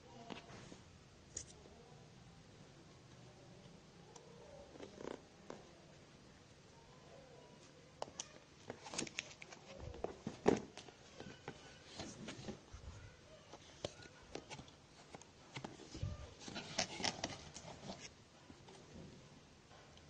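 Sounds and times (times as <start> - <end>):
cardboard box rustling: 13.8 - 18.2.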